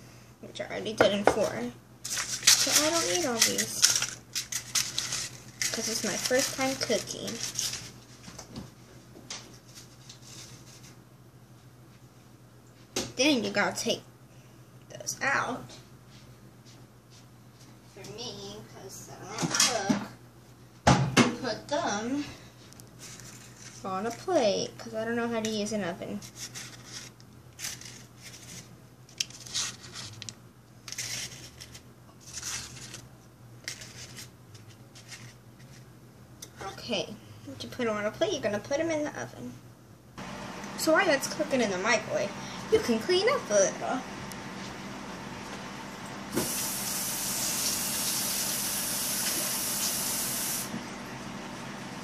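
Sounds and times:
paper liners rustling: 2.0s - 8.4s, 23.0s - 24.2s, 26.2s - 33.0s, 33.6s - 35.9s
aerosol spray can hissing: 46.3s - 50.7s.

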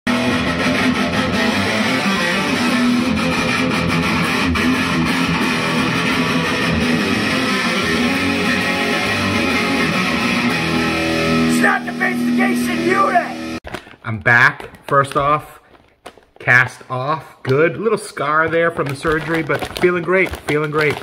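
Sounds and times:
electric guitar strumming: 0.1s - 13.6s.

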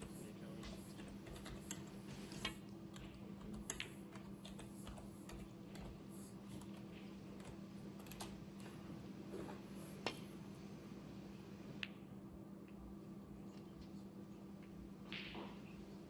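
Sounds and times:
low steady hum: 0.0s - 16.0s
cue tip striking ball: 15.0s - 15.6s.

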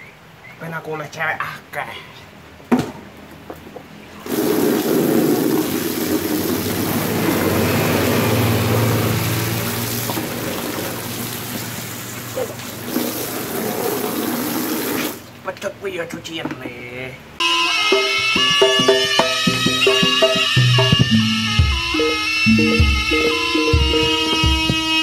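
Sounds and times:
tap water gushing: 4.2s - 15.4s.

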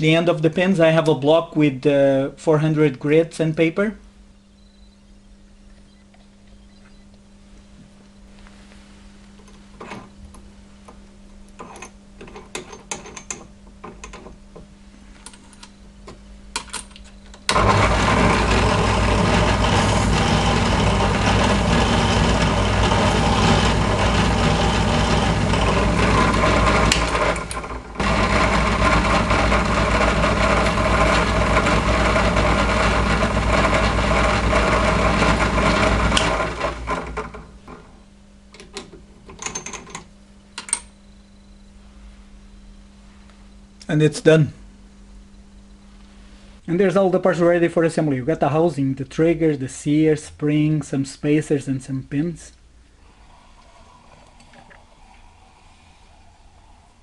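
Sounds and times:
drill press motor sanding metal: 17.5s - 38.0s.

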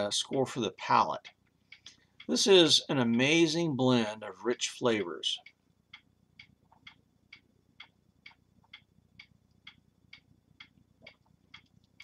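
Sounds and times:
clock ticking: 0.0s - 12.0s.

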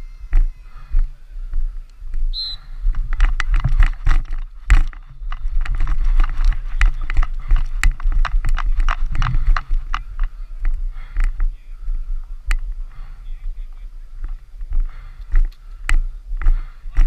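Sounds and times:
high-pitched whistle-like tone: 0.0s - 1.1s, 2.2s - 2.9s
low wind rumble: 0.0s - 17.0s
knocks and rattles of gear: 2.9s - 11.6s.

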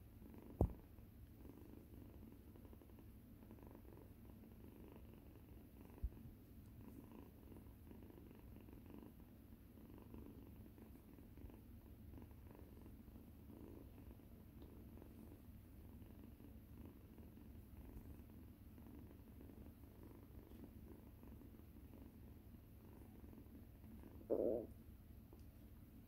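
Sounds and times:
cat purring: 0.0s - 26.0s
low thump: 0.6s - 0.8s.

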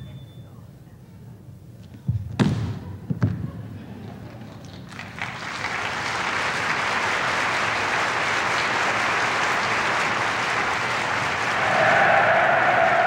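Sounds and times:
crowd applauding: 4.5s - 13.0s.

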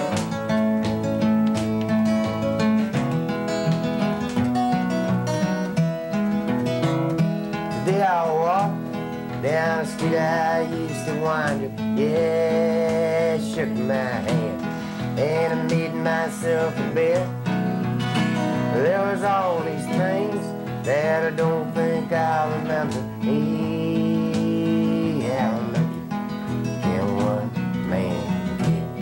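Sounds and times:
strummed acoustic guitar: 0.0s - 29.0s
person singing: 7.8s - 29.0s.

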